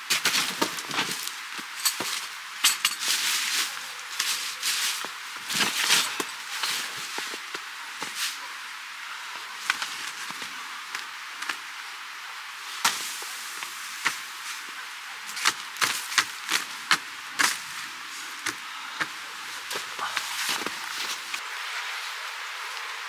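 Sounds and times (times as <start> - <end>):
steady hiss: 0.0 - 23.0
knocks and clicks of handled gear: 0.2 - 3.1.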